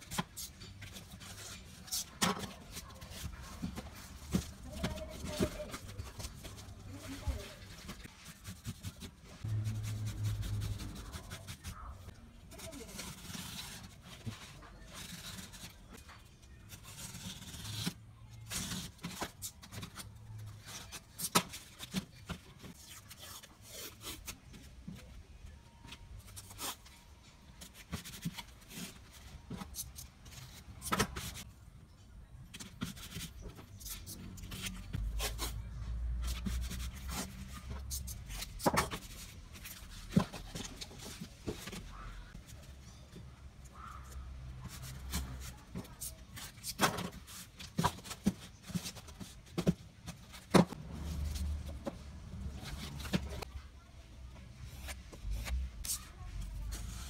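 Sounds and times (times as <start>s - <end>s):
pencil scraping on cardboard: 0.1s - 12.0s.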